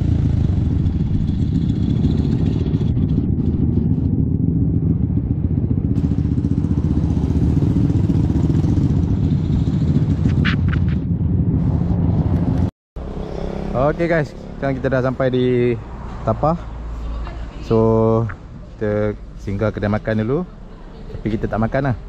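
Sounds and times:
motorcycle engine running: 0.0s - 15.2s.

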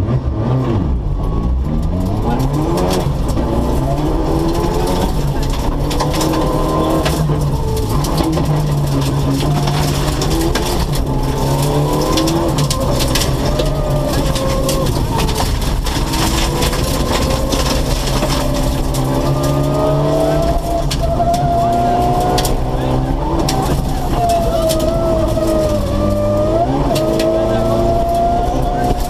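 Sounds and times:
rally car engine revving: 0.0s - 29.0s
gravel striking car underbody: 0.9s - 29.0s.

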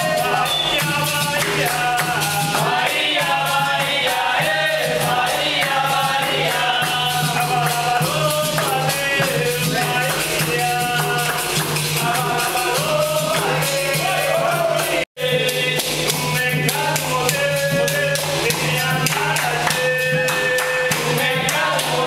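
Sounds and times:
berimbau: 0.0s - 22.0s
hand clapping: 0.0s - 22.0s
hand drum: 0.0s - 22.0s
voices singing a chant together: 0.0s - 22.0s.

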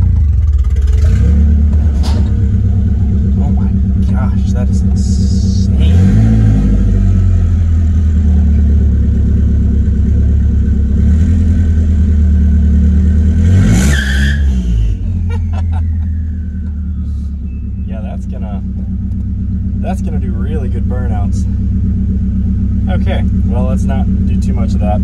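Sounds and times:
truck engine revving: 0.0s - 22.1s
high whine: 1.1s - 11.0s.

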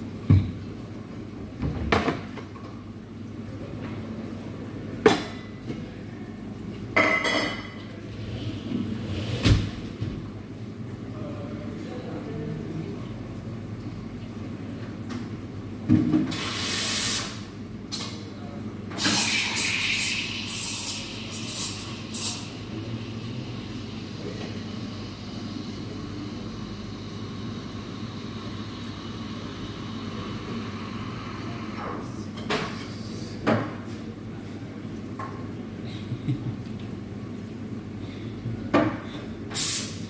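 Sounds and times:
espresso machine hissing: 16.3s - 17.5s, 18.9s - 32.3s, 39.5s - 40.0s
steady low hum: 19.8s - 39.6s.

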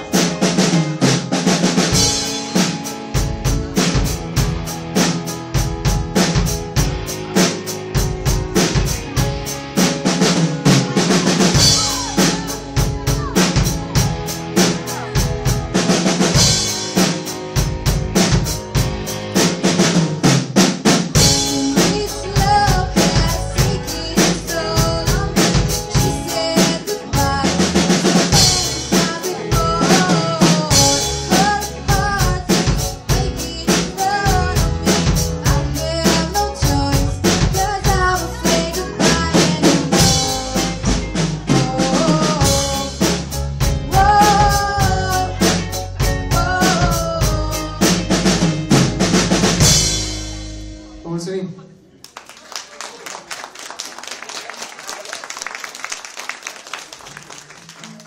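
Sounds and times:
drum kit beat: 0.0s - 51.0s
keyboard: 0.0s - 52.0s
electric guitars: 21.2s - 50.9s.

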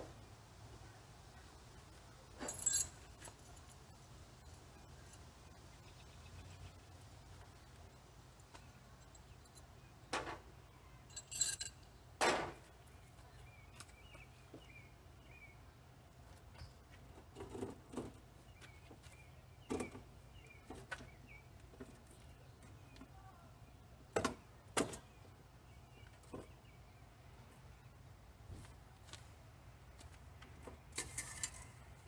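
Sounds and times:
metal bolts clicking and clinking: 2.4s - 3.8s, 11.1s - 11.9s
metal hardware jingle: 2.4s - 3.9s, 11.1s - 11.9s.

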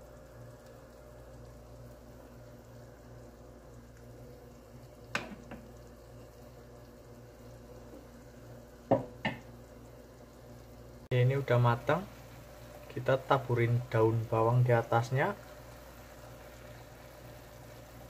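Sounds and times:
soup bubbling in a pot: 0.0s - 18.0s.

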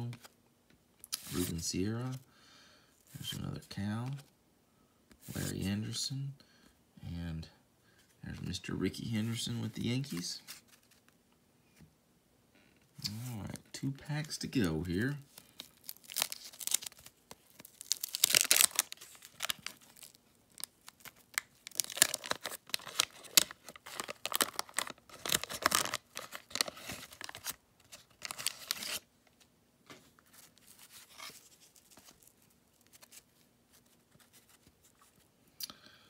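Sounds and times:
cards rustling: 1.2s - 2.2s, 9.2s - 11.1s, 14.1s - 35.3s
wrapper tearing and crinkling: 15.3s - 29.0s.

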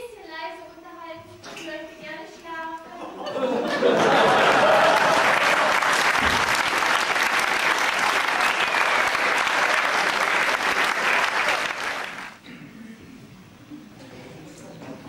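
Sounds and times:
audience applauding: 4.0s - 12.4s.

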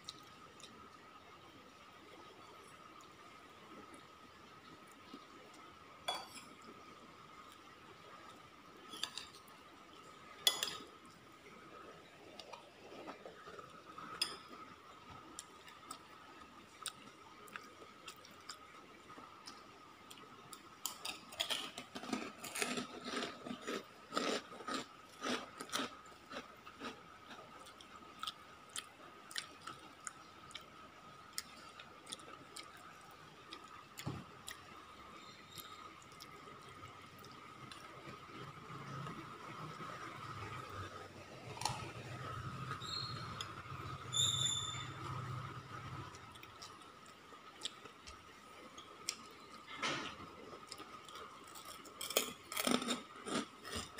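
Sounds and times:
chewing food: 12.2s - 43.8s, 45.0s - 49.7s, 50.4s - 53.9s.

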